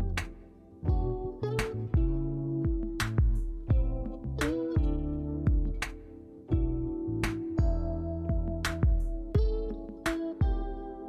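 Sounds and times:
low drum thumps: 0.9s - 1.3s, 2.0s - 5.9s, 6.5s - 6.9s, 7.6s - 9.8s.

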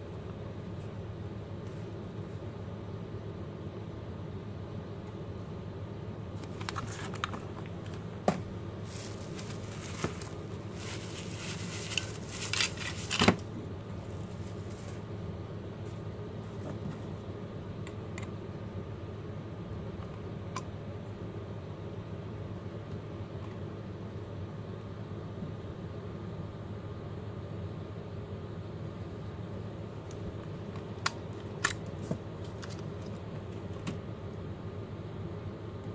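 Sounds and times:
steady background hum: 0.0s - 35.9s
bubble wrap and plastic crinkling: 6.4s - 8.0s, 8.8s - 15.2s.

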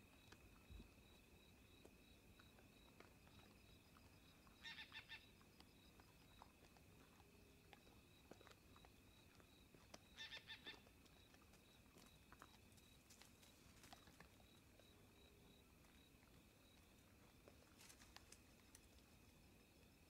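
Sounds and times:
bird calling: 10.2s - 10.8s.

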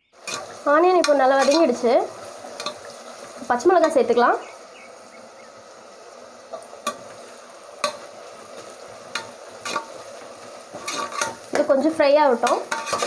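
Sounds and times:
onions sizzling in oil: 0.0s - 13.0s
ladle clinking against pot: 12.5s - 13.0s.

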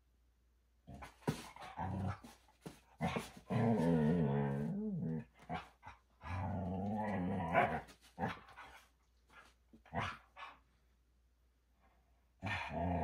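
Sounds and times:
scuffling knocks: 1.0s - 3.8s
dog growling: 3.0s - 8.5s, 12.4s - 13.0s.

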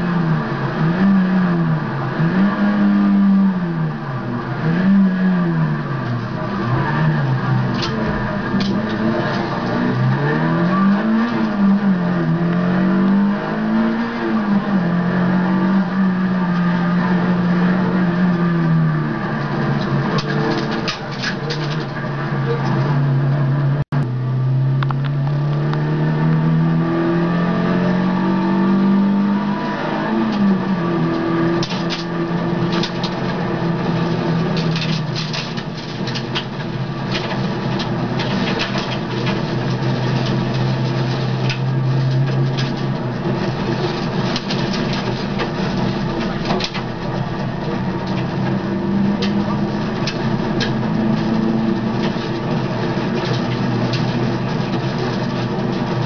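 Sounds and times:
rally car engine from cabin: 0.0s - 56.0s
gravel rattling against car: 5.6s - 12.7s, 19.0s - 23.5s, 29.3s - 56.0s.

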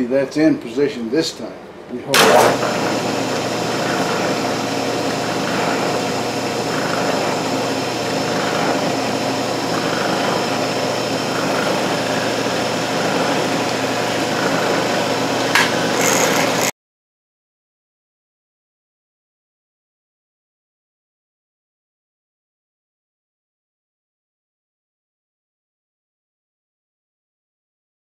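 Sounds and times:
short sharp sound: 2.2s - 2.8s
mill-drill milling plastic: 2.2s - 16.7s.

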